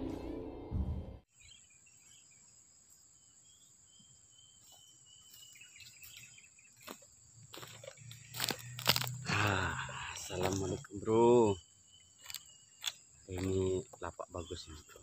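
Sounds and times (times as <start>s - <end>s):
high insect drone: 1.4s - 15.0s
footsteps on dry leaves: 4.7s - 9.2s.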